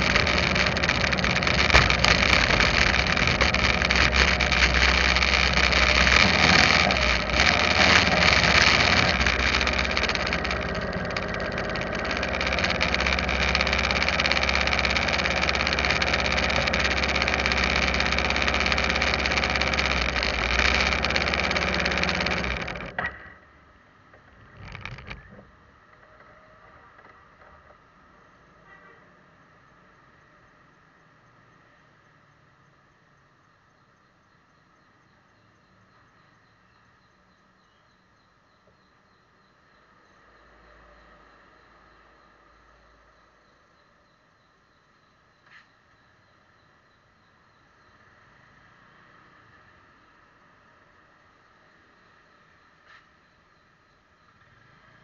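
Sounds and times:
vehicle engine running and idling: 0.0s - 23.2s.

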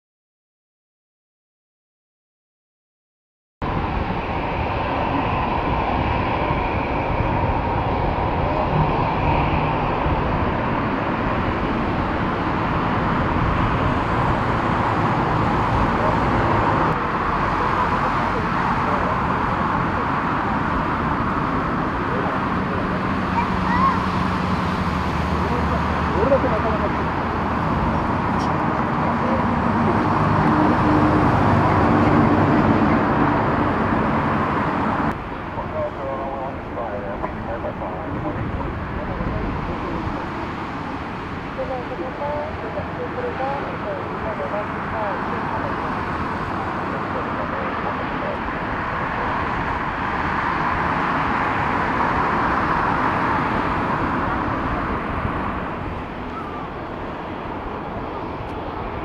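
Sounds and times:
distant jet engines rumbling: 3.6s - 59.0s.

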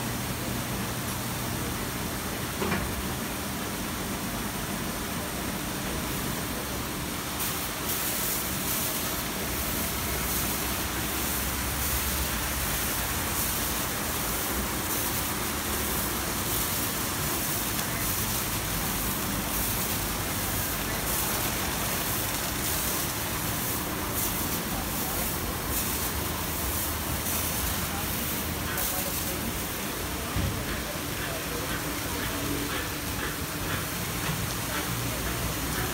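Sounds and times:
water spraying: 7.3s - 35.9s.

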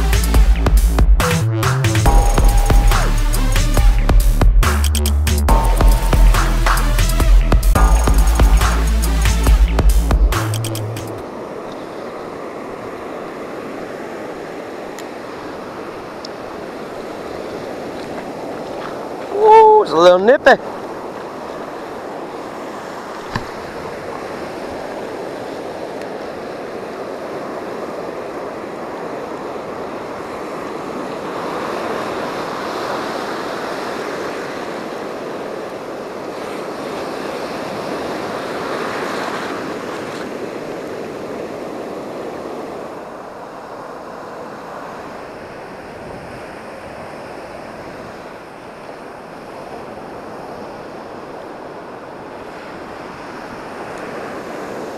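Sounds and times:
surf breaking on beach: 11.2s - 54.9s.

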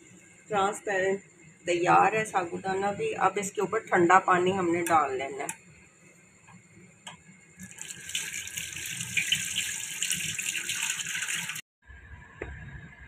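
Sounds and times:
water pouring into strainer: 7.6s - 11.6s.

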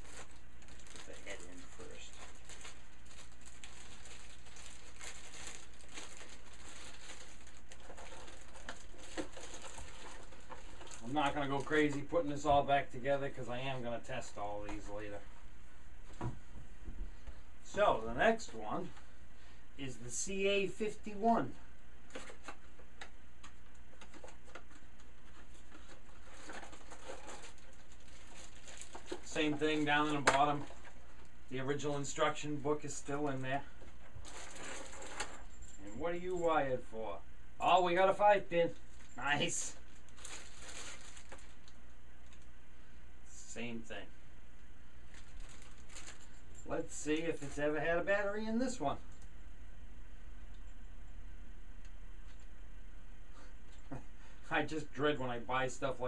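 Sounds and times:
plastic bag crinkling: 0.0s - 11.9s, 24.0s - 32.1s, 33.3s - 35.9s, 38.8s - 42.5s, 45.0s - 47.7s
packaging clicks and rustles: 0.0s - 12.0s, 23.4s - 31.3s, 33.8s - 35.9s, 39.8s - 42.4s, 45.1s - 46.7s
steady low hum: 0.0s - 56.0s.

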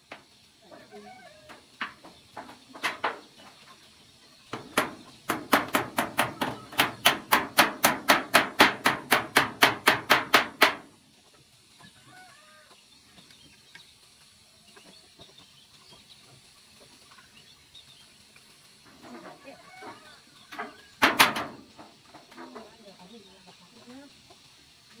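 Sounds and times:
chickens clucking: 0.0s - 25.0s
hammer striking nails into metal: 4.6s - 10.9s.

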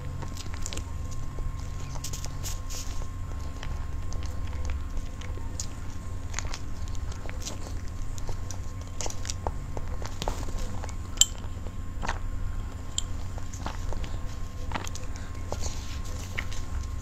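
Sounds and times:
mouth clicks and chewing: 0.0s - 17.0s
steady low hum: 0.0s - 17.0s.

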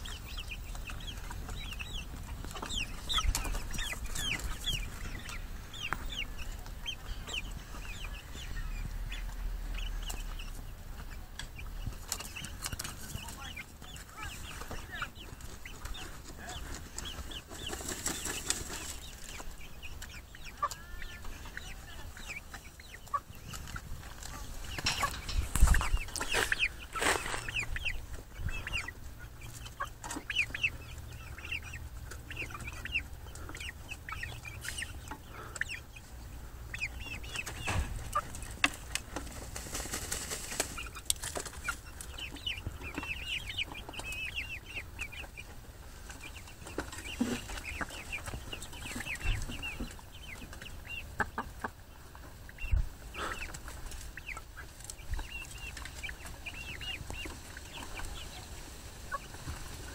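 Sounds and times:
hens clucking: 0.0s - 59.9s
hens pecking and scratching dirt: 0.0s - 59.9s.

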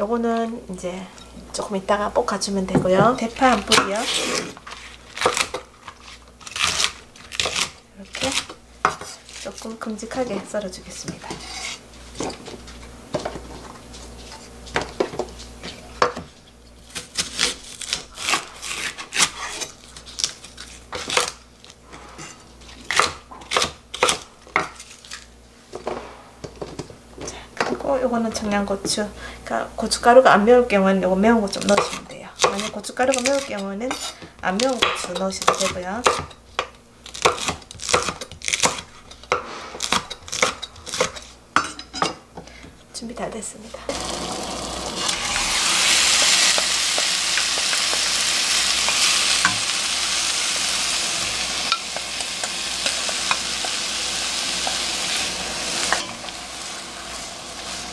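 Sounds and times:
knife slicing peppers: 16.1s - 21.4s, 31.5s - 41.8s.

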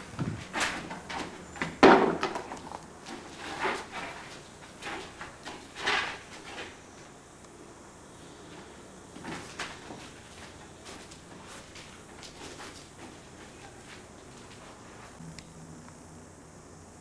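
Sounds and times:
short scrapes and knocks: 0.2s - 6.8s.

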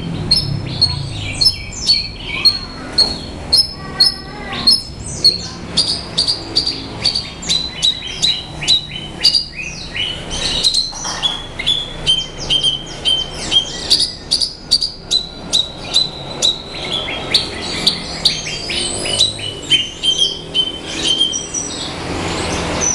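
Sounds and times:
bird singing high chirps: 0.0s - 22.9s.

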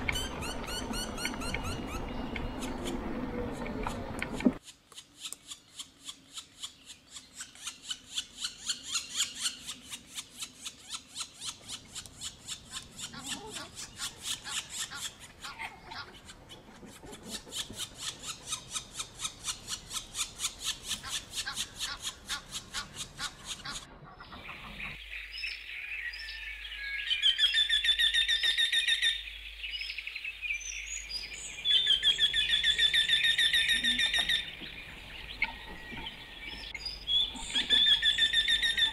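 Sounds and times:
birds chirping: 0.0s - 38.9s
warbling whistled bird phrases: 30.6s - 38.9s.

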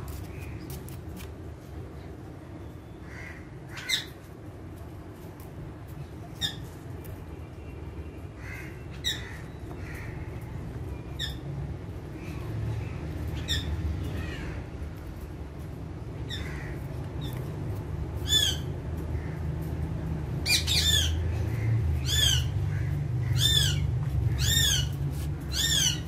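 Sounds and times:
parakeets chattering: 2.9s - 4.5s, 5.9s - 7.2s, 8.2s - 26.0s
parakeets squawking: 3.0s - 4.2s, 8.4s - 14.8s, 16.0s - 19.7s, 20.3s - 26.0s.

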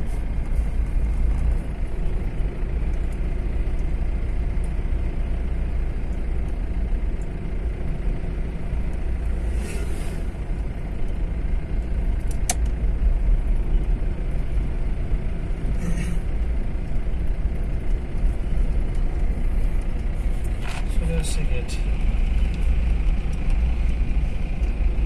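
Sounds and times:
car engine and tyres rumbling: 0.0s - 25.0s
vehicle whooshing past: 9.3s - 10.4s.

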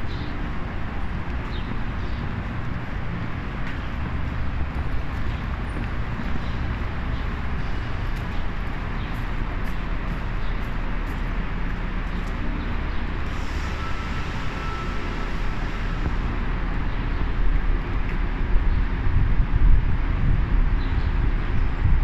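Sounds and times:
traffic rumble: 0.0s - 22.0s
wind buffeting microphone: 17.0s - 22.0s.

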